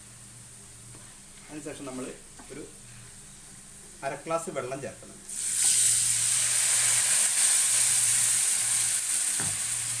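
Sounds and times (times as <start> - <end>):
loud sizzle of water in oil: 5.3 - 10.0.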